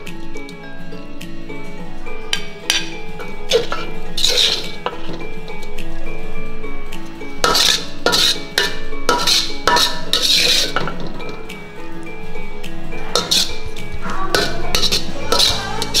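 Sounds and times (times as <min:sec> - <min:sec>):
background music: 0:00.0 - 0:16.0
metal spatula scraping a wok: 0:02.4 - 0:05.7, 0:07.4 - 0:11.4, 0:12.9 - 0:16.0.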